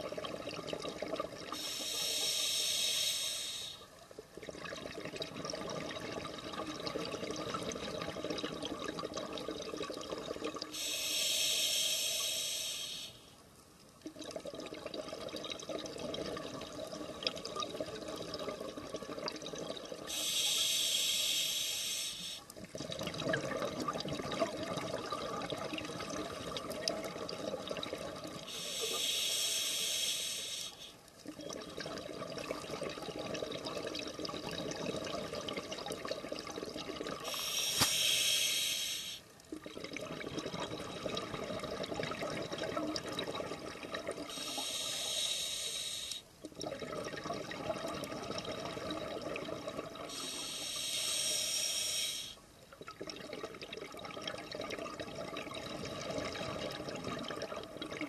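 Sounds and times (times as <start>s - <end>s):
hissing regulator inhale: 1.6s - 3.9s, 10.7s - 13.3s, 20.1s - 22.5s, 28.5s - 31.0s, 37.2s - 39.3s, 44.3s - 46.3s, 50.1s - 52.4s
bubbling exhale: 37.2s - 42.2s, 43.9s - 52.4s.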